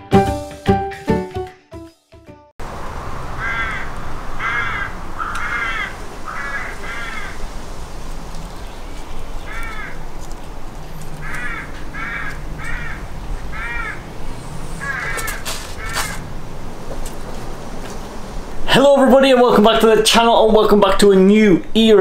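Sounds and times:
crow cawing: 3.2s - 7.5s, 9.4s - 10.0s, 11.2s - 14.1s, 14.8s - 16.3s.

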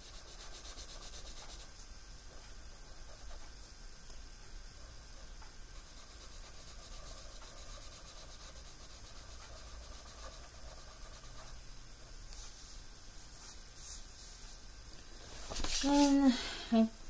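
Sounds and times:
pencil scratching on paper: 0.0s - 1.8s, 5.7s - 11.7s.

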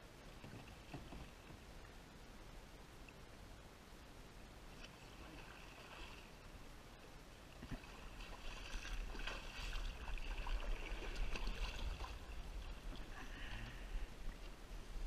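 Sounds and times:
paddle splashing in water: 4.7s - 6.3s, 7.6s - 13.8s.

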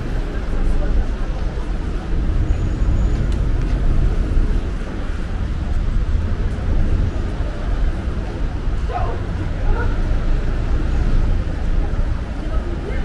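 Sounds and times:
city street traffic rumble: 0.0s - 13.0s.

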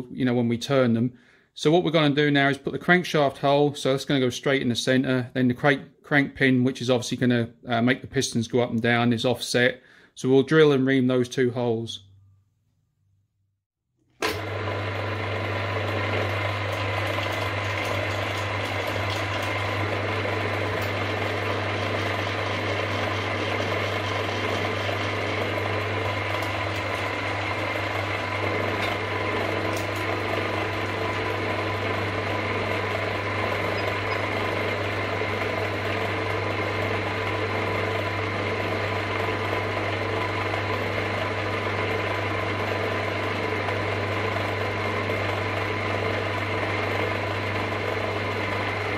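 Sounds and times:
milling machine spindle running: 14.3s - 48.9s
drill bit boring metal: 15.8s - 48.9s.

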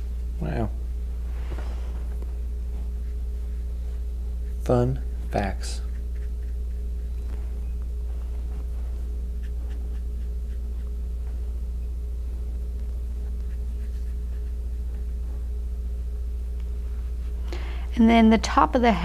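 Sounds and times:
faint constant tone: 0.0s - 19.0s
steady low hum: 0.0s - 19.0s
brush scratching on paper: 2.7s - 11.0s, 13.1s - 15.3s.

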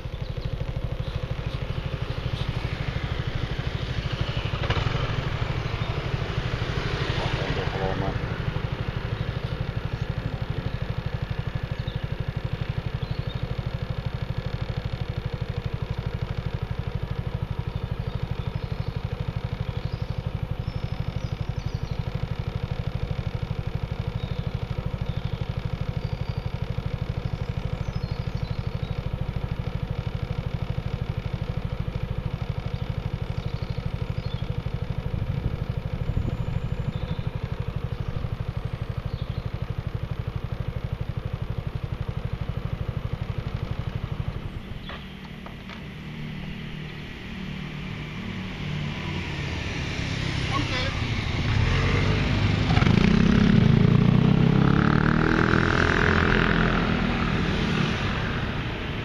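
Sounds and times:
faint bird chirps: 0.0s - 4.8s, 8.6s - 45.7s
scooter engine idling: 0.0s - 59.0s.

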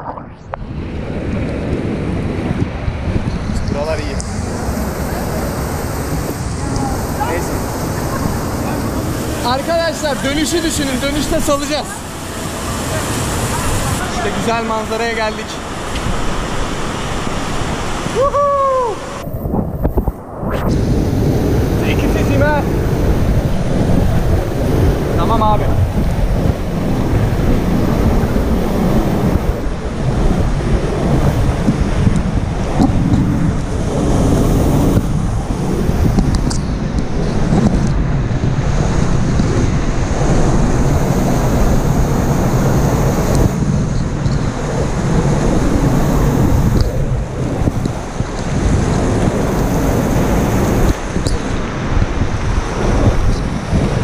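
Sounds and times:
water buffeting microphone: 0.0s - 54.0s.

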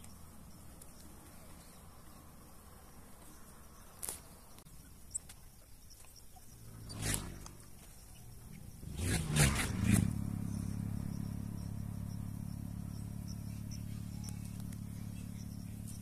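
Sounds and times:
engine revving and running: 6.6s - 16.0s.

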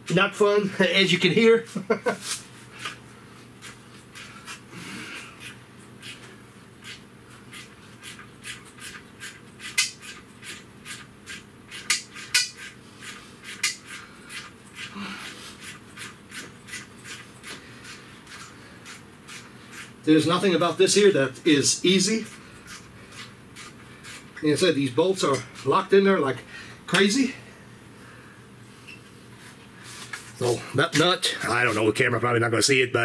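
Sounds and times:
hand ratchet clicking: 6.8s - 14.9s.

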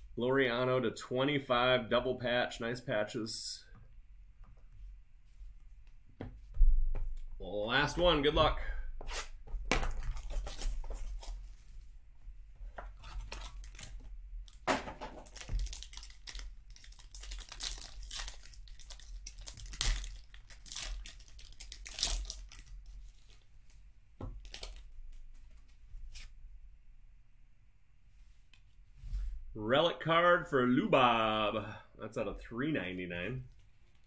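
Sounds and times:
foil wrapper ripping: 9.8s - 11.4s, 15.2s - 23.4s
foil wrapper crinkling: 9.8s - 11.5s, 13.0s - 23.5s, 24.4s - 24.9s.

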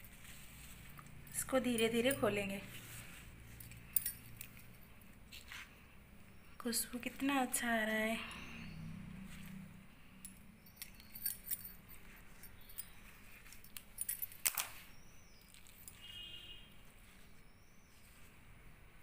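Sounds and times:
leaves rustling: 0.0s - 1.0s
bangles clinking against steel: 0.0s - 5.7s, 8.3s - 16.8s.

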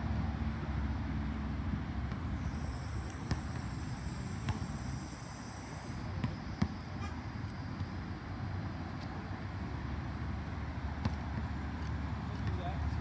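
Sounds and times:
basketball bouncing on hard court: 3.2s - 3.7s, 4.4s - 4.7s, 6.2s - 6.8s, 11.0s - 11.5s.

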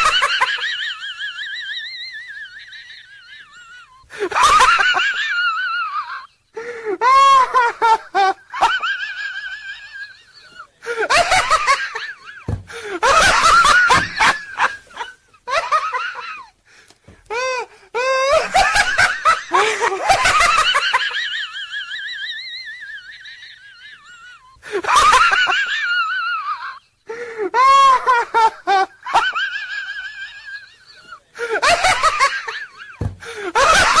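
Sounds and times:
high-pitched laughter: 0.0s - 6.4s, 17.3s - 34.0s.

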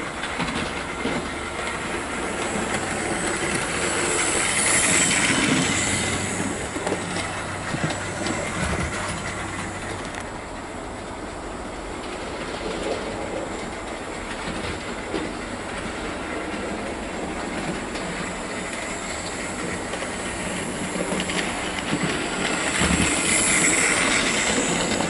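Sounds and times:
wheels rumbling on rails: 0.0s - 25.0s
model train motor whirring: 1.6s - 10.3s, 17.9s - 25.0s.

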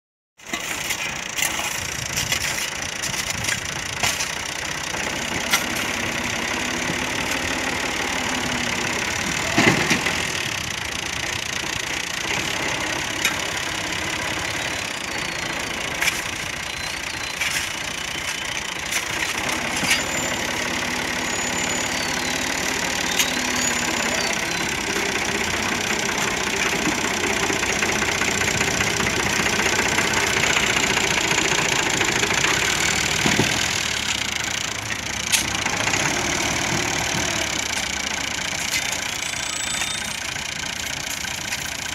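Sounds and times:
tractor diesel engine running: 0.4s - 41.9s
shovels clinking in sand and stones: 15.3s - 20.5s.

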